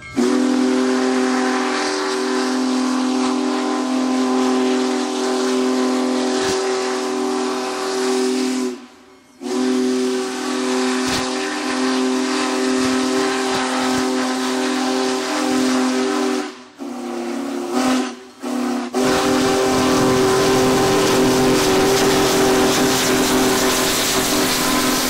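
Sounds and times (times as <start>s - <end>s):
steam hiss: 0.0s - 25.0s
steam whistle chord: 0.0s - 25.0s.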